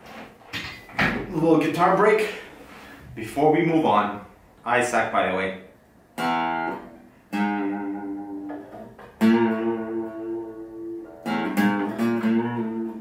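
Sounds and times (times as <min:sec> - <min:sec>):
acoustic guitar strumming: 0:06.2 - 0:13.0.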